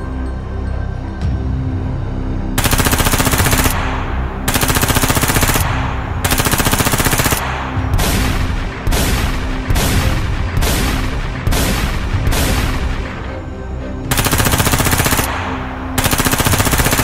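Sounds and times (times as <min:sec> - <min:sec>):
low background music: 0:00.0 - 0:17.0
machine-gun fire: 0:02.6 - 0:13.3, 0:14.1 - 0:17.0.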